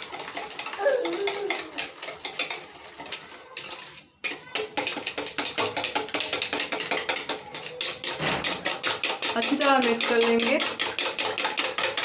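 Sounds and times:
utensil clicking against bowl: 4.3 - 12.0.

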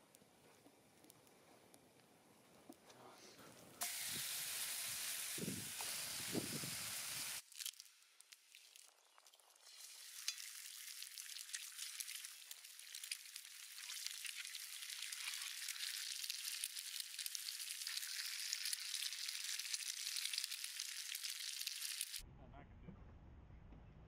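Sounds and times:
food sizzling in a pan: 3.8 - 22.2.

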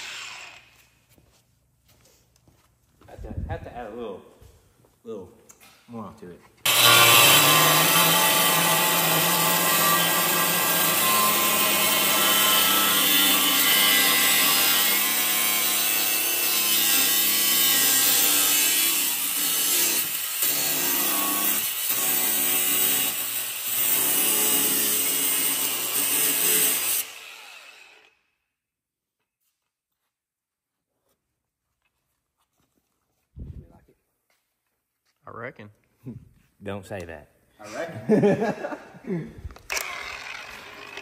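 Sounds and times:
power tool cutting: 0.0 - 0.7, 6.7 - 28.2, 39.7 - 41.0.

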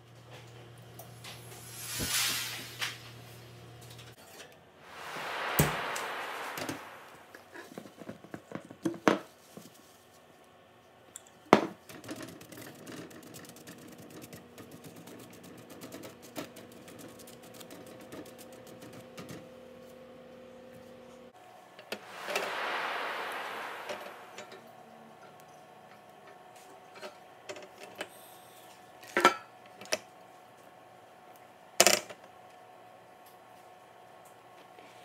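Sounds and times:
rushing sound: 1.4 - 3.4, 4.8 - 7.6, 22.0 - 24.8.

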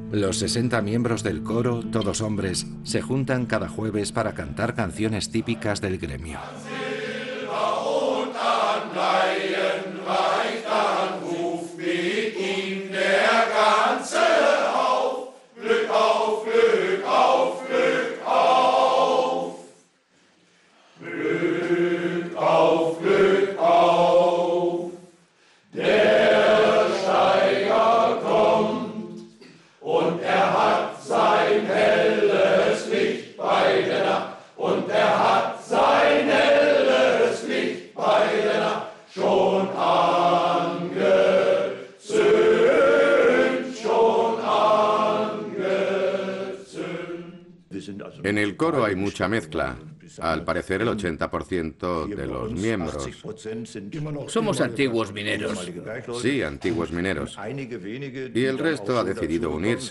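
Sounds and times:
male choir singing: 5.4 - 19.8, 21.0 - 25.1, 25.7 - 48.2.

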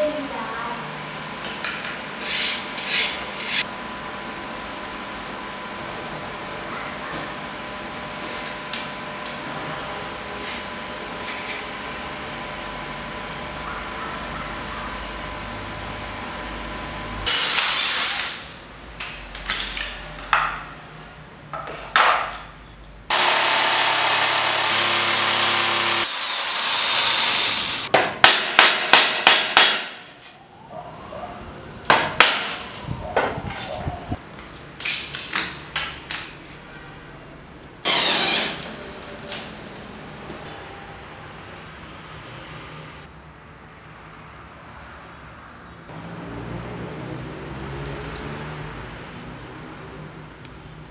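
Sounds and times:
cordless drill boring into wood: 23.1 - 27.9, 37.9 - 38.7
power tool running on wood: 23.1 - 27.9, 37.8 - 38.7.

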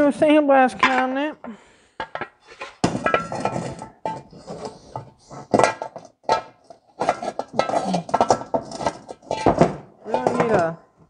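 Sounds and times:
sheet metal cover clanking: 2.0 - 10.8.

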